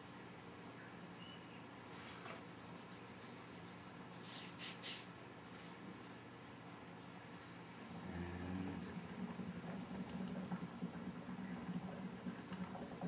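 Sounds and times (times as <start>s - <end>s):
low steady hum: 0.0s - 13.0s
coffee maker hissing and sputtering: 7.8s - 13.0s.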